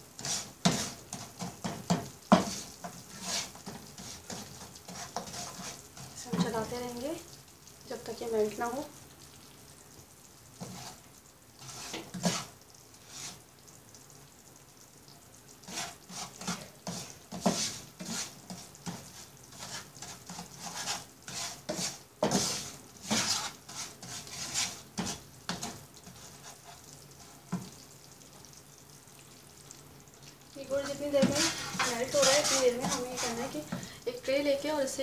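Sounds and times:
faint sizzle: 0.0s - 35.0s
wooden spatula scraping pan: 0.1s - 7.0s, 10.6s - 13.4s, 15.6s - 27.8s, 30.7s - 34.0s.

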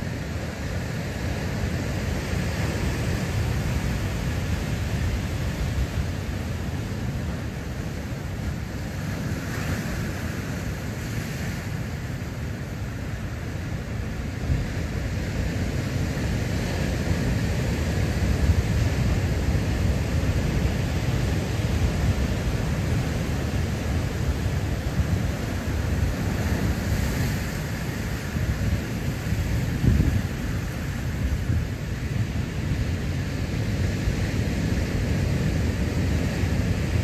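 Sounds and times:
wind buffeting microphone: 17.5s - 32.4s.

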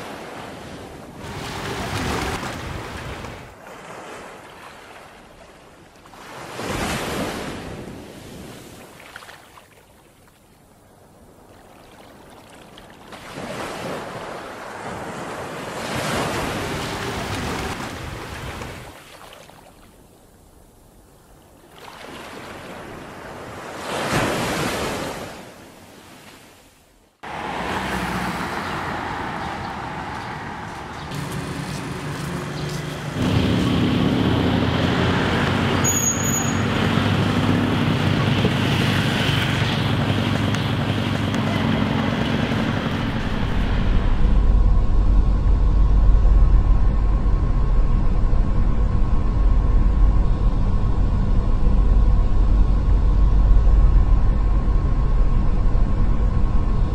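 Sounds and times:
sea waves washing in: 0.0s - 10.5s, 11.1s - 35.8s
street traffic noise: 27.2s - 44.4s
low engine hum: 27.2s - 56.9s.

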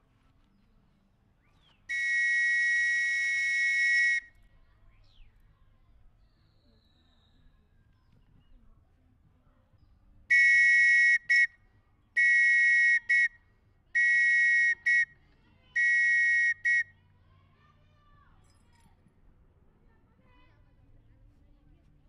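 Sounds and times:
whistle blasts: 1.9s - 4.4s, 10.3s - 11.6s, 12.2s - 13.4s, 14.0s - 15.2s, 15.8s - 17.0s.

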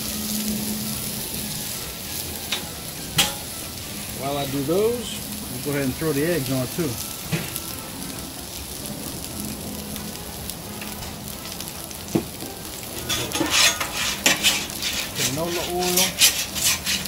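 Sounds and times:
sausages sizzling on griddle: 0.0s - 17.0s
metal spatula scraping griddle: 13.0s - 17.0s.

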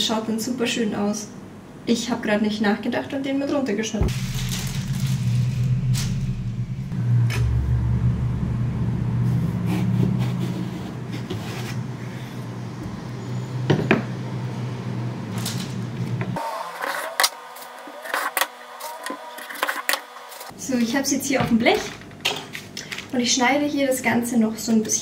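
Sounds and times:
steady low hum: 4.0s - 10.4s.

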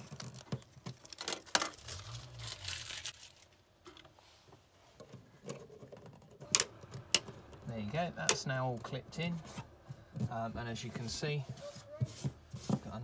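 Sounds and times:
masking tape peeling and crumpling: 0.0s - 3.6s.

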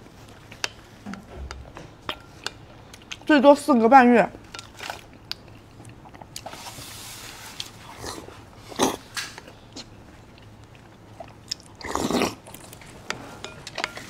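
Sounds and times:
chewing: 4.5s - 14.0s
slurping food off a spoon: 11.8s - 12.7s.

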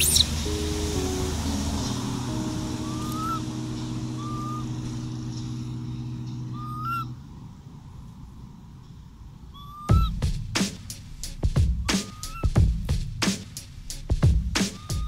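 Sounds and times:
short rising chirps: 0.0s - 7.4s, 11.9s - 12.5s
vehicle engine idling: 0.0s - 11.4s.

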